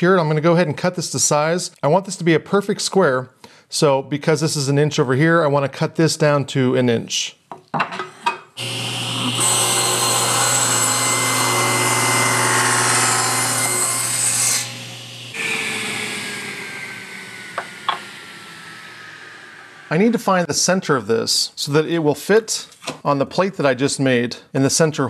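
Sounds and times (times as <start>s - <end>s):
saw blade cutting wood: 8.6s - 19.9s
table saw motor humming: 8.6s - 20.1s
saw blade winding down whine: 8.6s - 20.4s.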